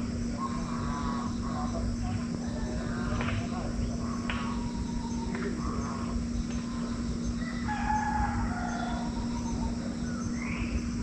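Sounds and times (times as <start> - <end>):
steady low hum: 0.0 - 11.0
rooster crowing: 7.4 - 9.8.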